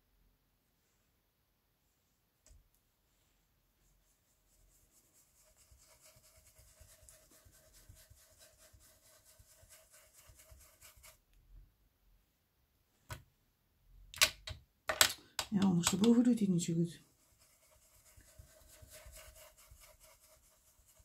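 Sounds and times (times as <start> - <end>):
brush rubbing on paper: 3.1 - 11.2, 16.3 - 21.0.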